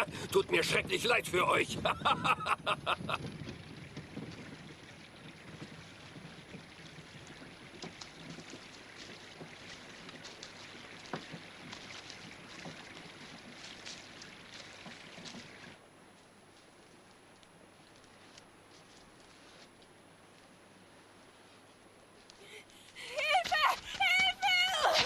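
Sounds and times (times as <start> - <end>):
water rushing: 0.0 - 15.8
small ticks and splashes: 3.2 - 20.6.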